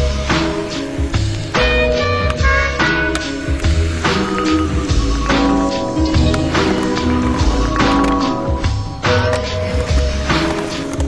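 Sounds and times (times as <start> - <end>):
music with steady beat: 0.0 - 11.0
bass line: 1.6 - 10.4
held tones: 4.1 - 9.9.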